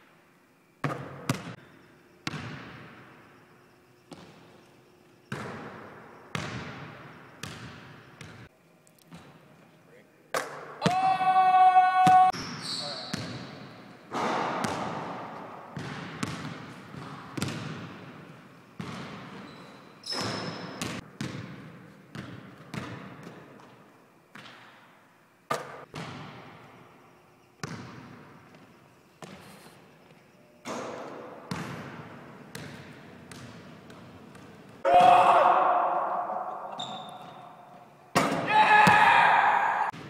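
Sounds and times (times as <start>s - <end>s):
basketball bouncing on hardwood floor: 6.3s - 8.4s, 14.6s - 15.0s, 15.8s - 17.9s, 18.8s - 19.3s, 20.2s - 23.4s, 31.5s - 34.5s.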